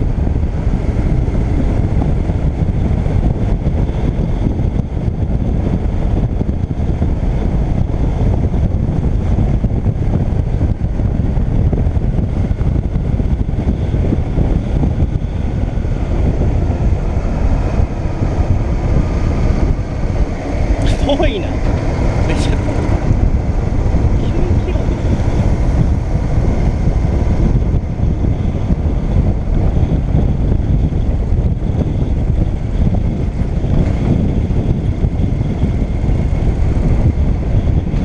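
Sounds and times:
motorcycle engine running: 0.0s - 38.0s
wind buffeting on microphone: 0.0s - 38.0s.

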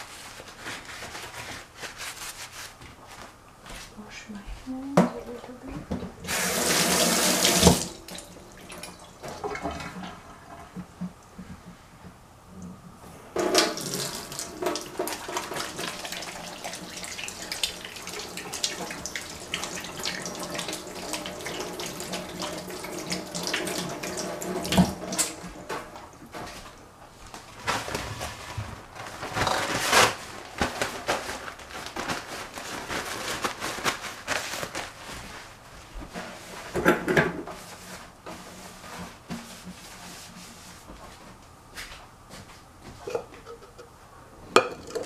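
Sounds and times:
tap running into sink: 5.9s - 10.0s, 13.4s - 16.4s, 17.6s - 25.9s.

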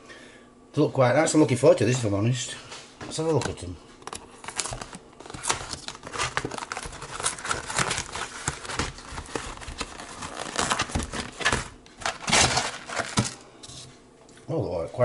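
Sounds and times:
packaging crinkling and tearing: 3.4s - 13.4s.

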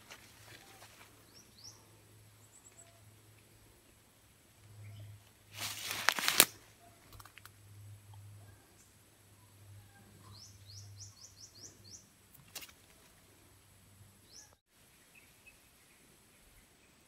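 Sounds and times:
dry leaves rustling and crackling: 5.5s - 6.8s.

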